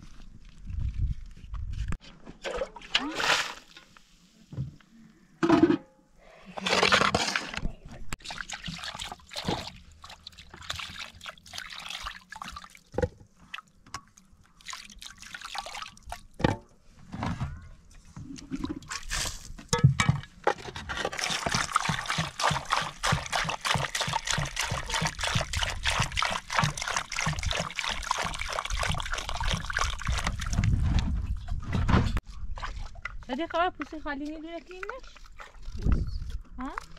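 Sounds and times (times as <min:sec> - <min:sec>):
water pouring into metal pot: 0:08.2 - 0:12.8, 0:14.6 - 0:16.3, 0:21.2 - 0:30.6.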